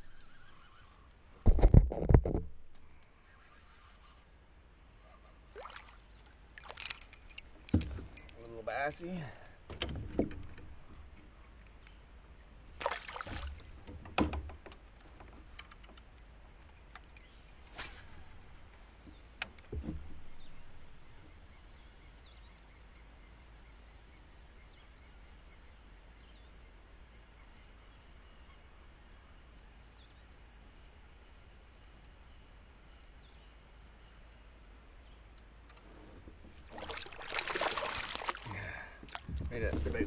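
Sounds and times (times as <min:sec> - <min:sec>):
dull thump: 0:07.7 - 0:08.2.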